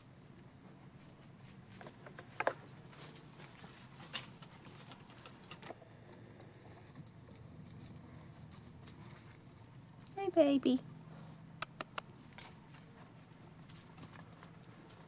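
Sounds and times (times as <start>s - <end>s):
paws rustling dry leaves: 2.6s - 9.9s.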